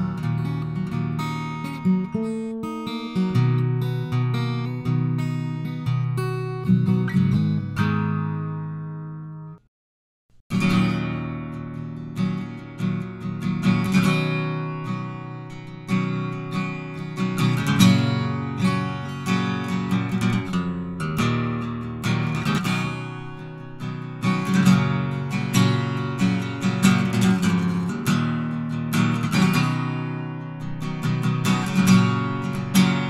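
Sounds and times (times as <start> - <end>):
electric guitar chords and notes: 10.5 - 33.0.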